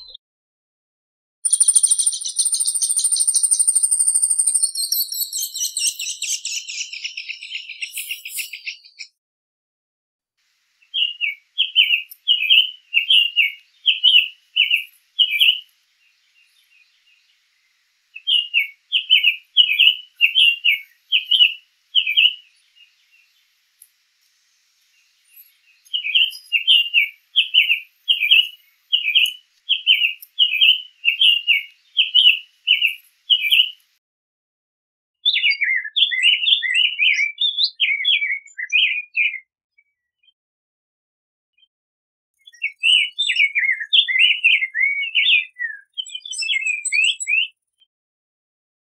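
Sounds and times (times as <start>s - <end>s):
bird singing: 0.0s - 0.2s, 1.4s - 9.2s, 10.8s - 23.6s, 24.9s - 33.8s, 35.3s - 40.4s, 42.4s - 47.8s.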